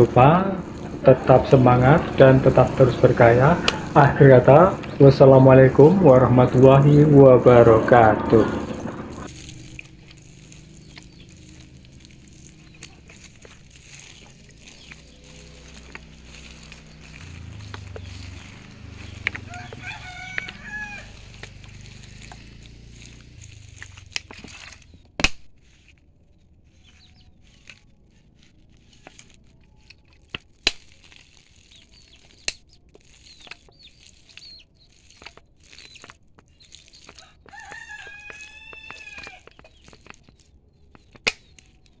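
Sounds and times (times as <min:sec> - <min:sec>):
rooster crowing: 0:19.5 - 0:21.3, 0:37.2 - 0:39.4.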